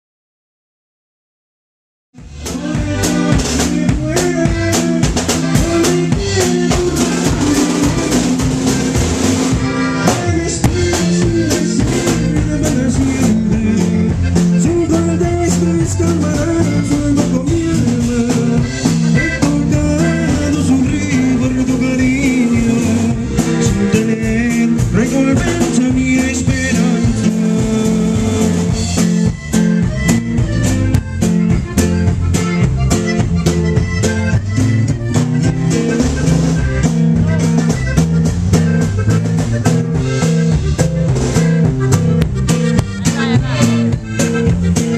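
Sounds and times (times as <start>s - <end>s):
button accordion melody: 2.2s - 44.9s
guitar: 2.2s - 44.9s
steady drum beat: 2.2s - 44.9s.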